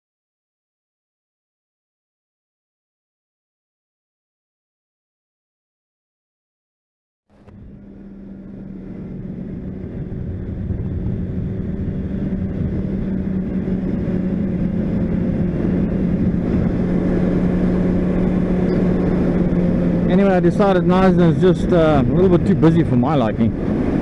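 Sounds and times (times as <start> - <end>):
motorcycle engine cruising: 7.3 - 24.0
wind and road rumble: 7.3 - 24.0.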